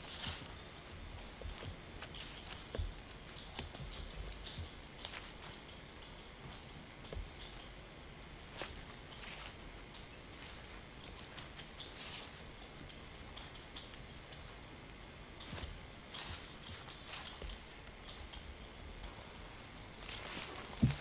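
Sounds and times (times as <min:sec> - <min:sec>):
steps rustling through dry leaves: 0:00.0 - 0:07.3, 0:08.4 - 0:12.5, 0:15.4 - 0:17.9, 0:19.9 - 0:21.0
crickets chirping: 0:00.0 - 0:21.0
steady high insect trill: 0:00.0 - 0:21.0.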